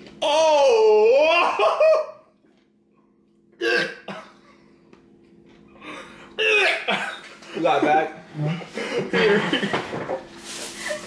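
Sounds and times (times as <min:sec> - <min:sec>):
faint steady hum: 0:00.0 - 0:11.0
man coughing: 0:03.6 - 0:04.5, 0:06.4 - 0:07.3, 0:08.4 - 0:09.8.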